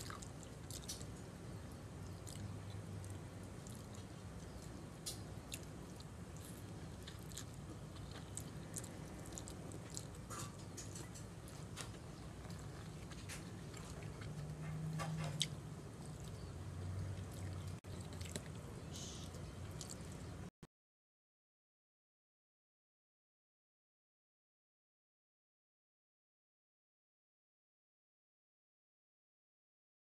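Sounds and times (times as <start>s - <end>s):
chewing and wet mouth sounds: 0.0s - 20.5s
low steady hum: 0.0s - 20.5s.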